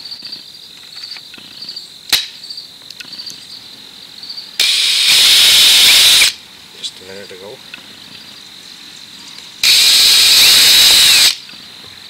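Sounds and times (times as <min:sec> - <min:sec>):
crickets chirping: 0:00.0 - 0:12.0
sharp click: 0:02.1 - 0:03.1
loud hiss of noise: 0:03.6 - 0:12.0.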